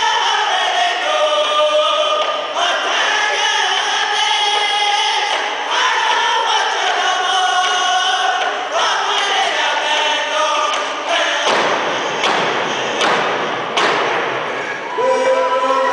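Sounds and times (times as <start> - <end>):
men singing in unison: 0.0 - 12.0.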